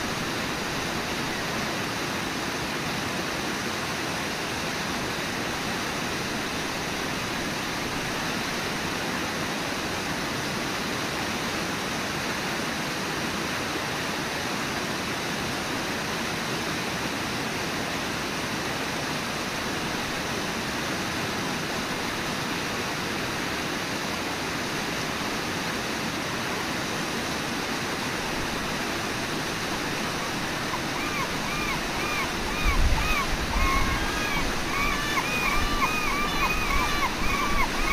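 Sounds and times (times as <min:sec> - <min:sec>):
river water rushing: 0:00.0 - 0:37.9.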